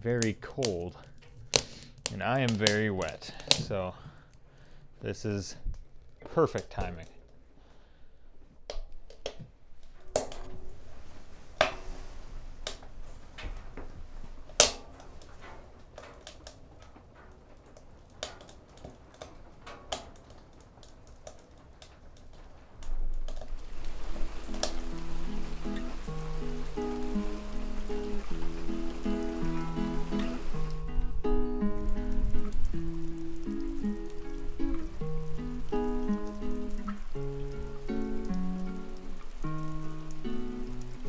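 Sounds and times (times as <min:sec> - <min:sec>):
wood fire crackling and popping: 0:00.0 - 0:41.0
music: 0:24.4 - 0:41.0.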